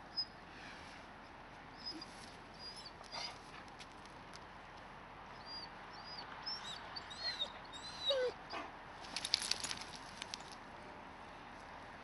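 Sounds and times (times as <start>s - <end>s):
dog whining: 5.5s - 8.4s.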